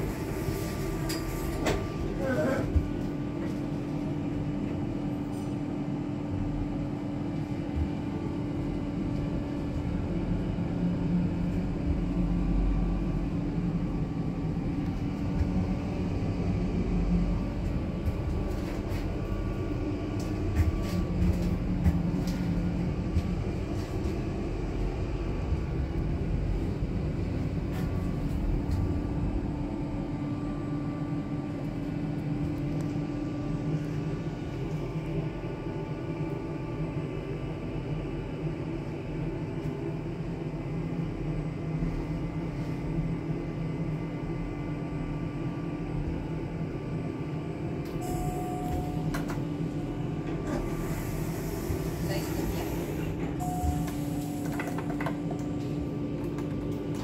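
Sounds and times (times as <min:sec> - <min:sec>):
lift car humming: 0:07.9 - 0:36.4, 0:47.4 - 0:57.0
low tone: 0:47.8 - 0:51.8, 0:53.1 - 0:56.2.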